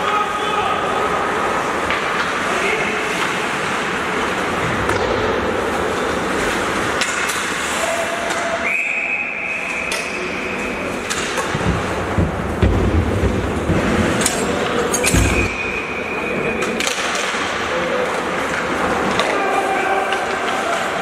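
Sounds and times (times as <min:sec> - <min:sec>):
ice rink game ambience: 0:00.0 - 0:21.0
stick and puck clacks: 0:01.8 - 0:02.5, 0:04.8 - 0:05.4, 0:06.6 - 0:08.6, 0:09.8 - 0:15.4, 0:16.6 - 0:21.0.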